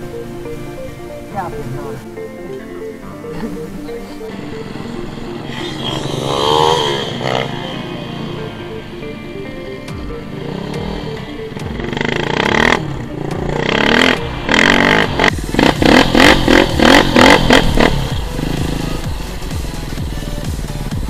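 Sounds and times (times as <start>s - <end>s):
motorcycle engine revving: 3.2s - 21.0s.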